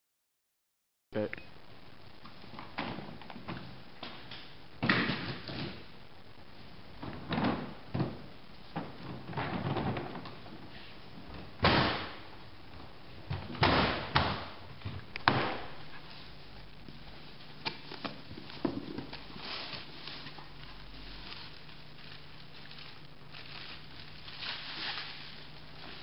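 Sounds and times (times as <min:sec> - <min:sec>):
bubble wrap rustling: 0:15.7 - 0:26.0.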